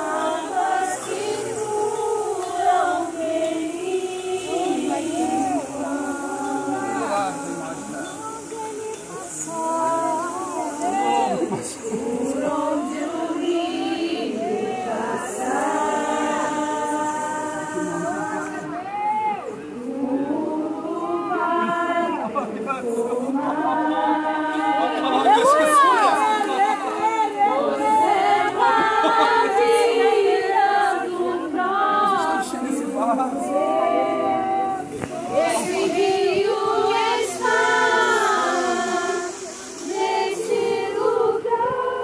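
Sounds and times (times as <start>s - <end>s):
group of voices singing: 0.0s - 42.0s.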